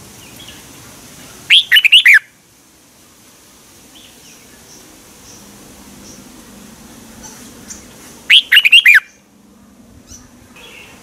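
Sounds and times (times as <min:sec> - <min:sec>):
faint bird calls: 0:00.3 - 0:02.3, 0:07.1 - 0:09.3, 0:10.1 - 0:11.0
bird singing warbled notes: 0:01.5 - 0:02.3, 0:07.2 - 0:09.2.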